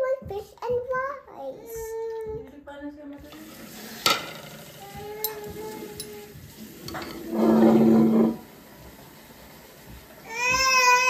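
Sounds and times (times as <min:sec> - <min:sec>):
glass lid clinking: 0:06.8 - 0:08.4
young child crying loudly: 0:10.3 - 0:11.0.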